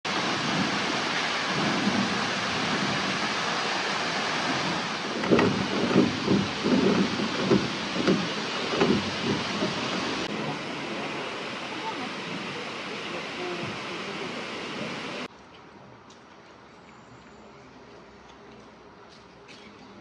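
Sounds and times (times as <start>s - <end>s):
waterfall rushing: 0.1s - 15.3s
low thumps: 4.4s - 10.5s.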